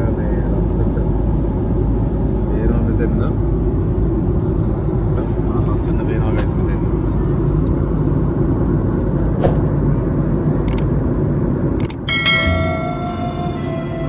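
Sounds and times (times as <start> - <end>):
music with held notes: 12.1 - 14.0.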